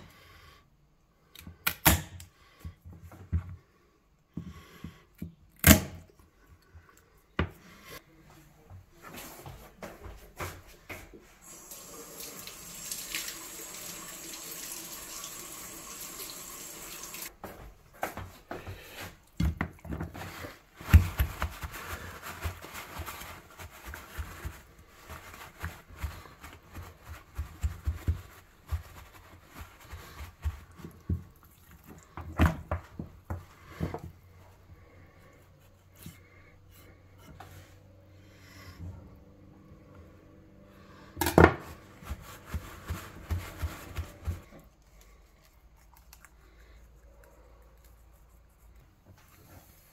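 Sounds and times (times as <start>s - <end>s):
water tap running: 11.4s - 17.3s.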